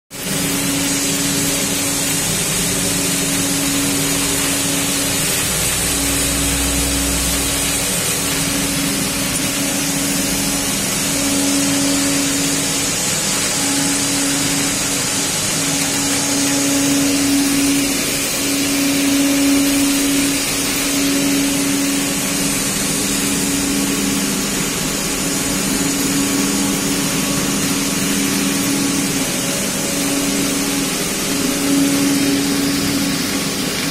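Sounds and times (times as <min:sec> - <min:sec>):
hiss: 0:00.1 - 0:33.9
machine mechanical hum: 0:00.1 - 0:33.9.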